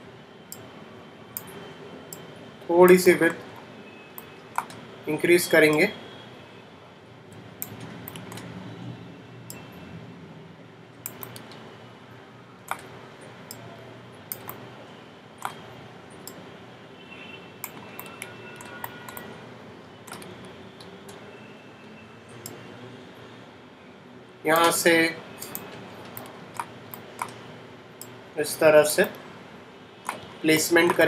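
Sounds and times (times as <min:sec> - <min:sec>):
mouse and keyboard clicking: 0:04.2 - 0:04.8, 0:07.6 - 0:08.5, 0:11.0 - 0:11.6, 0:12.7 - 0:12.9, 0:14.3 - 0:14.6, 0:15.4 - 0:16.4, 0:17.6 - 0:19.3, 0:20.1 - 0:21.2, 0:25.4 - 0:27.4, 0:30.0 - 0:31.0.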